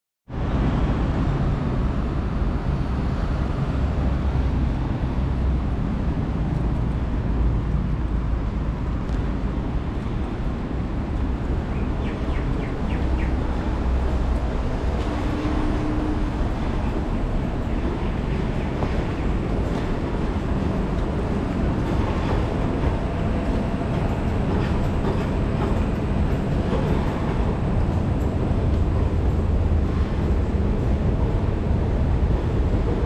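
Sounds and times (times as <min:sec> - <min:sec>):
low city rumble: 0:00.3 - 0:33.0.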